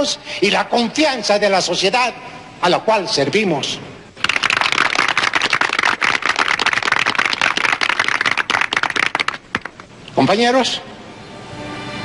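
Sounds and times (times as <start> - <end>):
crowd applauding: 4.2 - 9.9.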